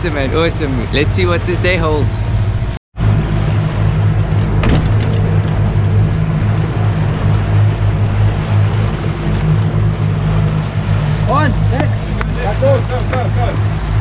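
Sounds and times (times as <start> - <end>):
outboard motor droning: 0.0 - 14.0
water rushing past: 0.1 - 14.0
wind rushing: 0.8 - 14.0.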